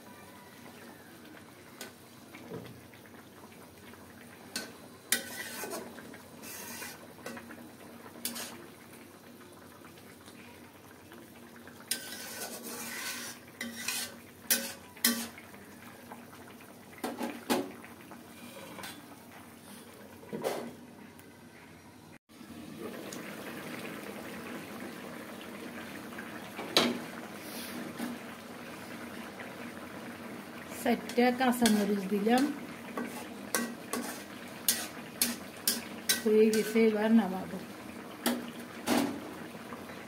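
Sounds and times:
spoon scraping a cooking pot: 4.6s - 7.4s, 8.2s - 8.6s, 11.9s - 15.4s, 33.0s - 36.8s.

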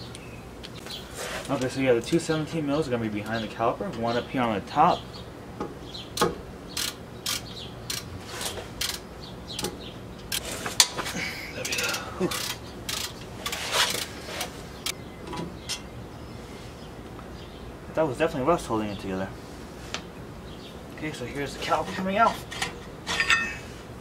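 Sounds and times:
hand ratchet clicking: 6.2s - 8.1s, 8.8s - 9.0s, 11.6s - 14.1s.

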